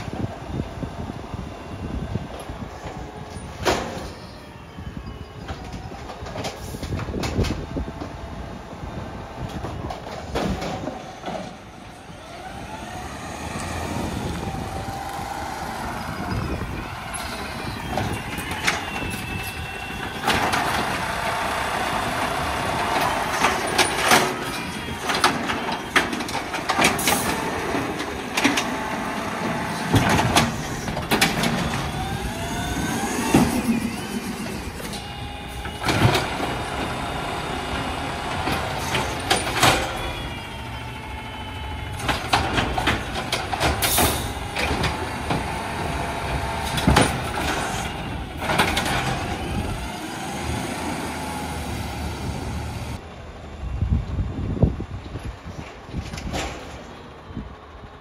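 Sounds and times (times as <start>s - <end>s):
garbage truck hydraulic arm: 9.5s - 53.0s
truck engine revving: 11.7s - 53.0s.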